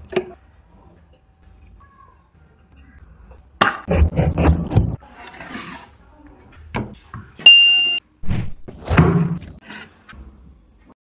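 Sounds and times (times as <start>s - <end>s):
high electronic ding: 7.5s - 8.0s.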